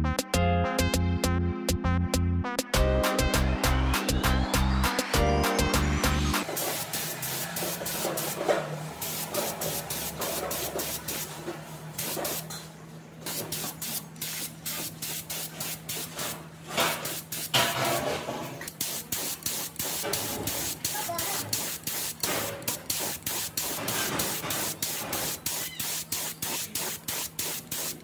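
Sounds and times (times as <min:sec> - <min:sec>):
spray gun hissing: 0:06.4 - 0:12.5, 0:13.3 - 0:17.6, 0:18.7 - 0:28.0.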